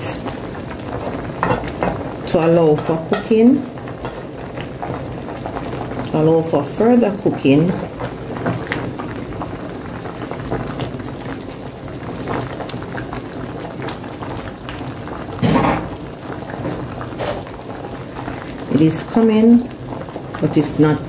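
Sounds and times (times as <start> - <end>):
pot bubbling: 0.0 - 21.0
wooden spoon knocking pot: 1.4 - 3.4.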